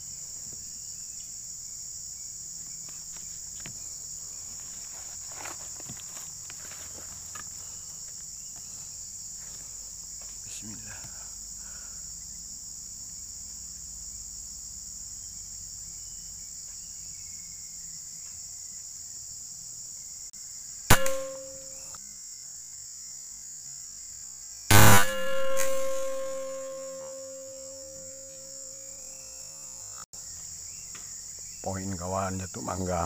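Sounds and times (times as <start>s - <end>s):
insects droning: 0.0s - 33.0s
air rifle shot: 20.9s - 21.7s, 24.7s - 27.2s
short ringing tone: 20.9s - 21.8s, 24.7s - 28.7s.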